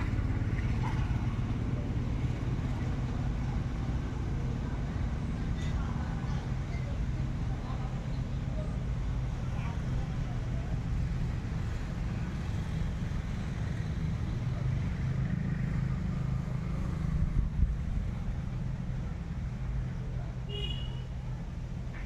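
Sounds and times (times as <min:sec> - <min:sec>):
wind buffeting microphone: 0:16.3 - 0:19.4.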